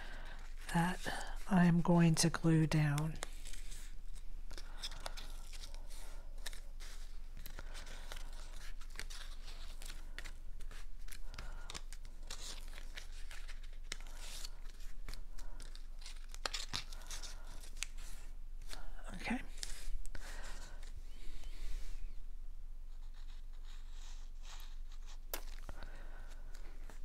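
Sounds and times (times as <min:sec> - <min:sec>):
stiff paper crackling and rustling: 0:02.8 - 0:21.0.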